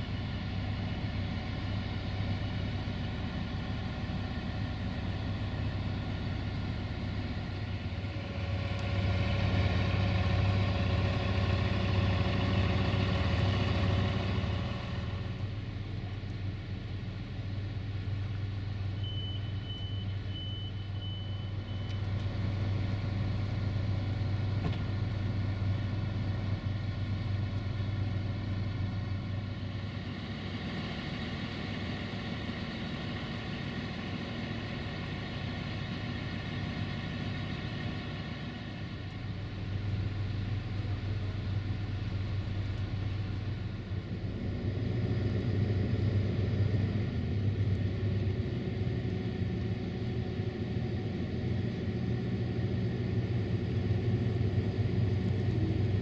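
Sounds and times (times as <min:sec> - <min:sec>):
train diesel engine idling: 0:00.0 - 0:56.0.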